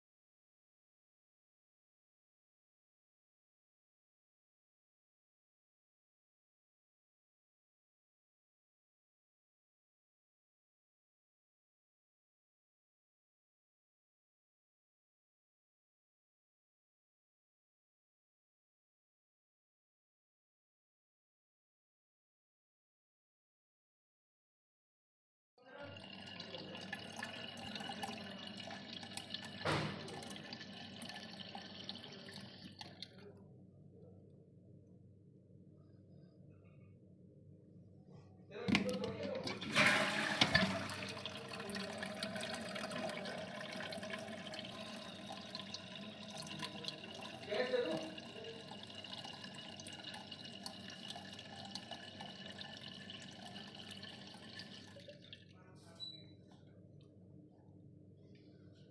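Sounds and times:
faint running water: 25.7 - 33.3, 38.6 - 56.2
water dripping in cistern: 26.0 - 33.2, 40.2 - 55.6.

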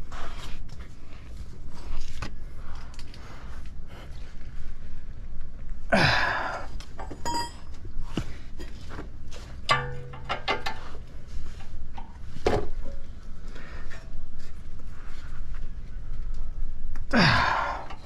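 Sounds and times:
metal tools clinking: 7.0 - 7.8, 9.7 - 11.0.

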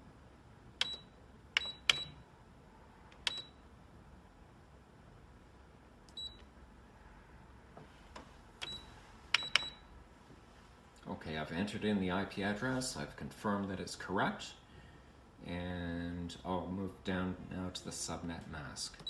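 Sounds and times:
keypad key clicks: 1.6 - 2.2, 8.6 - 9.8.

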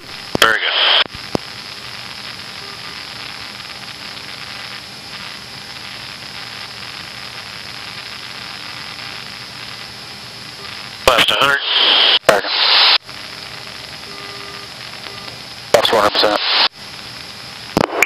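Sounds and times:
intercom radio hiss: 0.3 - 1.1, 10.6 - 16.8.

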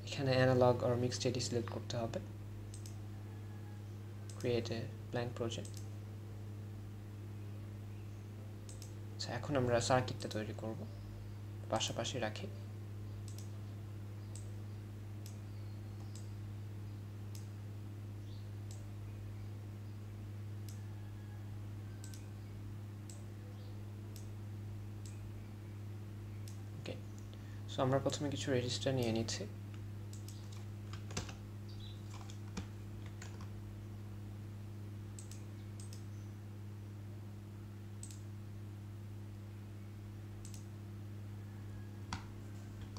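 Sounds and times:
low electrical hum: 0.0 - 42.9
computer mouse clicking: 2.7 - 3.0, 4.3 - 4.5, 5.6 - 5.9, 8.7 - 9.0, 13.2 - 13.5, 14.3 - 14.5, 15.2 - 16.3, 22.0 - 22.3, 29.7 - 31.4, 32.1 - 33.5, 35.2 - 36.2, 38.0 - 38.3, 40.4 - 40.7.

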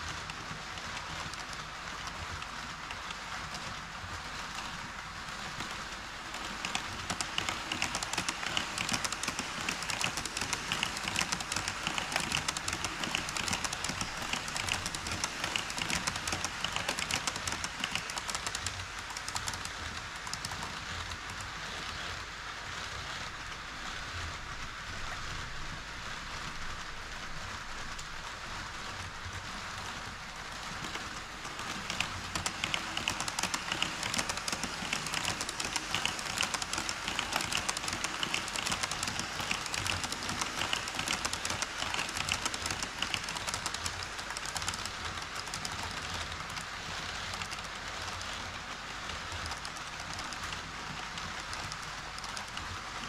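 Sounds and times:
model train wheels rattling: 0.0 - 23.4, 27.8 - 53.0.

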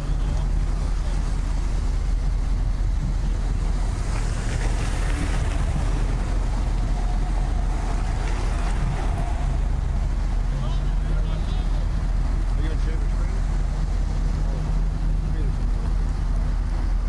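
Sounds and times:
car road and wind rumble: 0.0 - 17.0.

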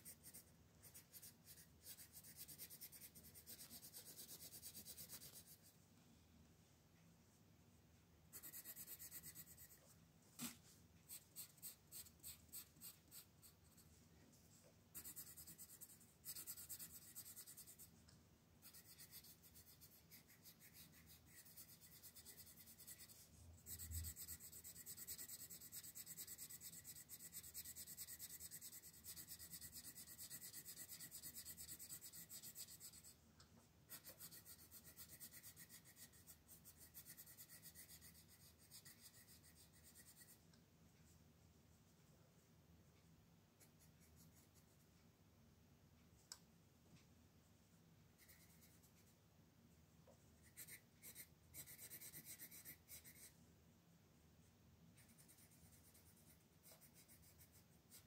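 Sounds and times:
pencil shading on paper: 0.0 - 5.6, 8.3 - 9.8, 11.1 - 13.9, 15.0 - 17.9, 18.6 - 33.2, 33.9 - 40.4, 50.4 - 53.3, 55.0 - 58.0.

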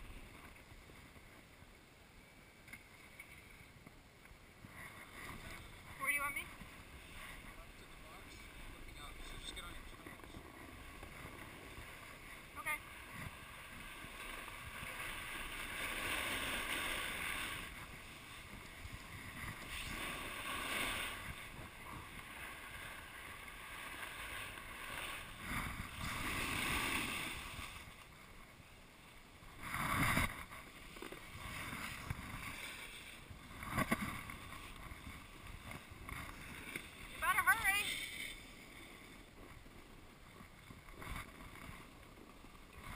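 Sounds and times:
ski edges scraping snow: 4.7 - 27.9, 29.5 - 42.9
wind noise on microphone: 14.6 - 22.9, 24.8 - 27.9, 29.5 - 30.7.

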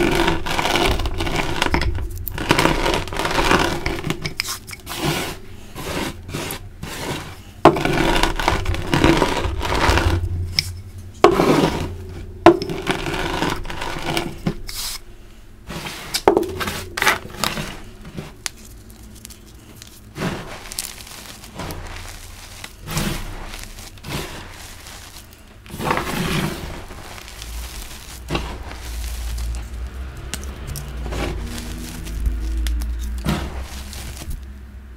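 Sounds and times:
hands crushing chalk: 0.0 - 15.1, 15.7 - 34.6
sharp chalk cracks: 15.8 - 34.6.

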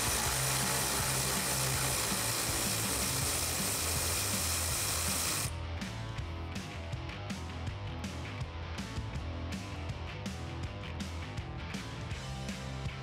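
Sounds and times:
electric ratchet running: 0.0 - 5.5
background music: 0.0 - 13.0.

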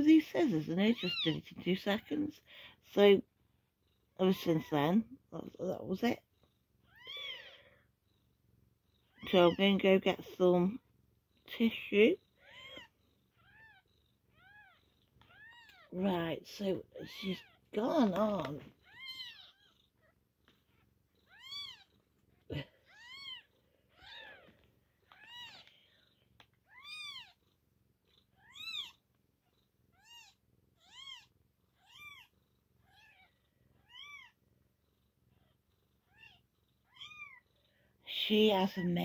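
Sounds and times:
kittens mewing: 18.6 - 25.9.

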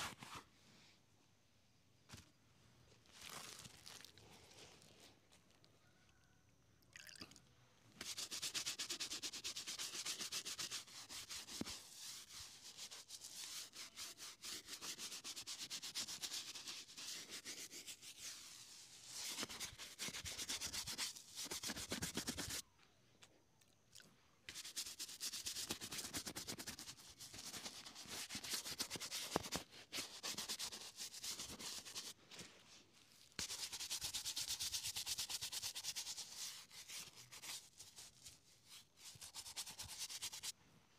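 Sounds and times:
brush scrubbing leather shoe: 8.0 - 22.6, 24.5 - 32.2, 33.2 - 40.5.

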